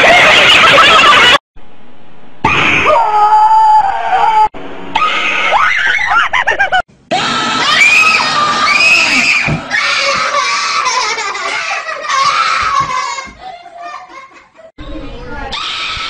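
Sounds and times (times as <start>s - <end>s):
children screaming: 2.9s - 6.3s, 7.1s - 14.2s, 15.2s - 16.0s.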